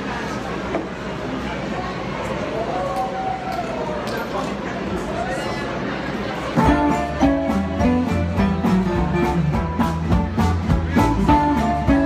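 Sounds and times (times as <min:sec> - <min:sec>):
small band playing upbeat tune: 0:06.6 - 0:12.0.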